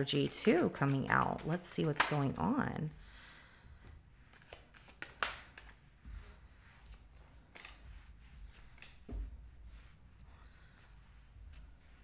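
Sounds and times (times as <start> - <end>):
cards slapping on wooden table: 1.4 - 2.4, 4.3 - 9.4.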